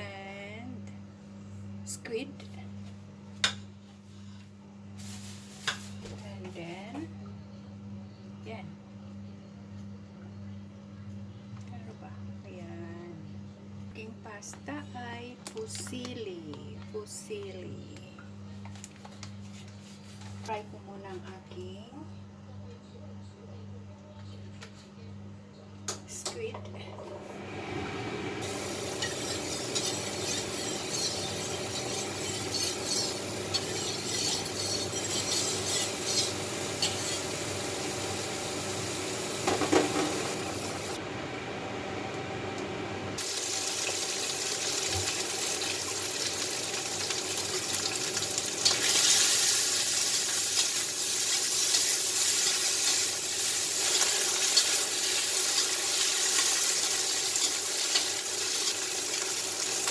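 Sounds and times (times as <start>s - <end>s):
oil sizzling in a wok: 5.0s - 6.0s, 28.4s - 41.0s, 43.2s - 59.9s
metal spatula scraping pan: 28.8s - 37.4s.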